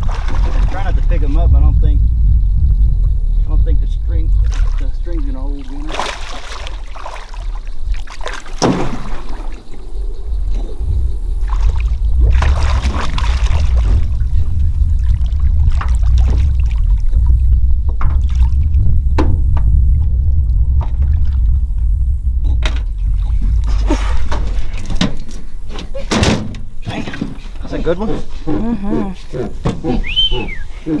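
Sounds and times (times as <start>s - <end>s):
fish splashing in water: 0.0s - 1.0s, 4.4s - 10.0s, 11.1s - 18.8s
loud low rumble: 0.0s - 6.9s, 9.7s - 25.8s.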